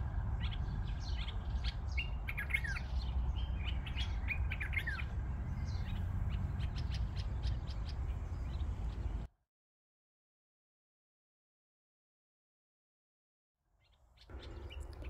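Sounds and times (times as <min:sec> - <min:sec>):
small birds chirping: 0:00.0 - 0:09.3, 0:13.8 - 0:15.0.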